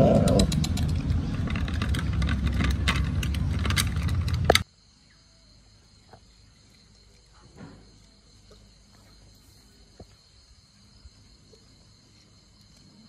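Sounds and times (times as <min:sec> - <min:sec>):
insect trill: 0:00.0 - 0:13.0.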